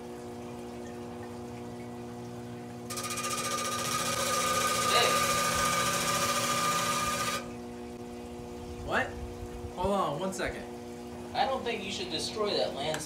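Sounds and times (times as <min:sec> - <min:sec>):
saw motor humming: 0:02.9 - 0:07.7.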